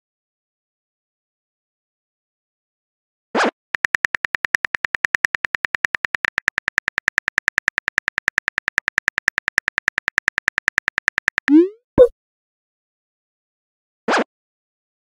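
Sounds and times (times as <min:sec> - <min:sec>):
phone keyboard taps: 0:03.8 - 0:11.6.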